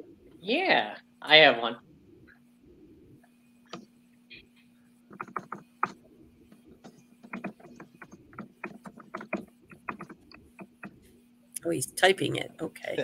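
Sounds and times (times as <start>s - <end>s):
faint steady hum: 0.0s - 13.0s
keyboard key clicks: 6.8s - 11.0s.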